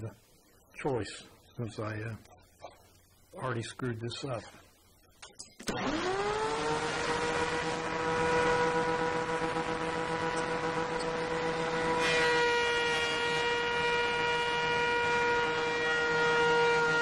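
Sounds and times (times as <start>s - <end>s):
thickness planer motor whine: 5.6s - 17.0s.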